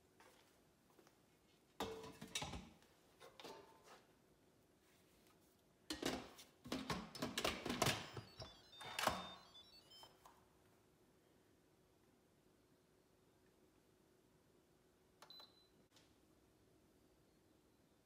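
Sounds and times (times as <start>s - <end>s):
electronic chime beeps: 7.8s - 10.2s.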